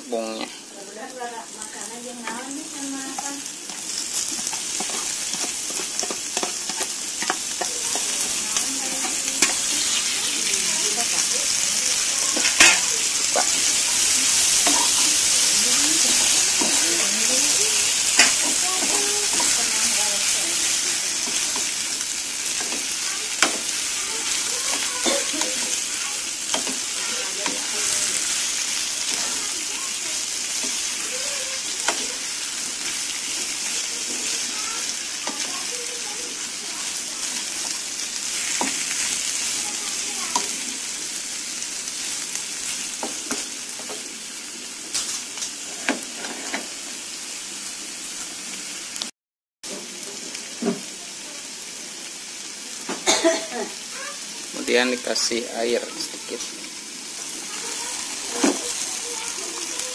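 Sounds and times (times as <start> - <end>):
food sizzling in a frying pan: 0.0 - 59.9
wooden spatula scraping a pan: 2.2 - 11.3, 45.6 - 46.8.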